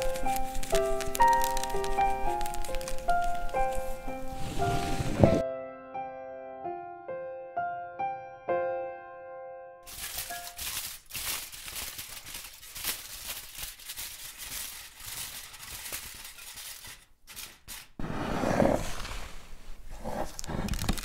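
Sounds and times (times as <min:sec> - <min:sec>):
aluminium foil crinkling: 0:00.0 - 0:05.4, 0:09.8 - 0:18.0, 0:19.9 - 0:21.0.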